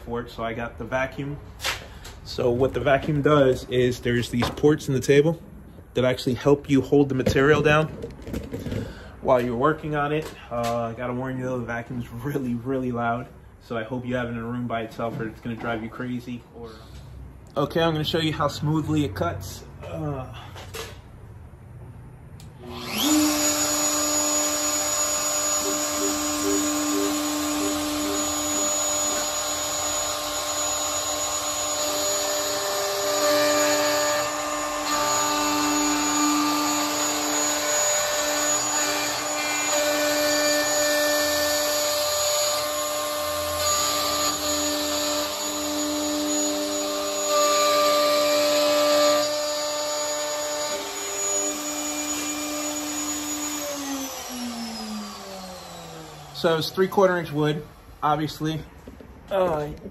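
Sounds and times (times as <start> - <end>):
router motor whine cutting wood: 22.6 - 57.4.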